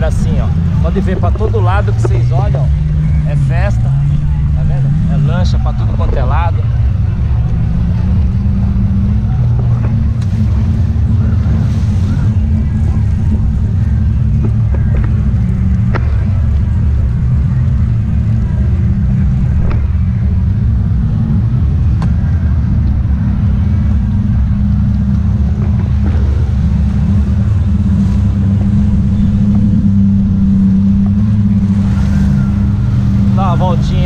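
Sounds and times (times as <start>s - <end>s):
jet ski engine droning: 0.0s - 34.0s.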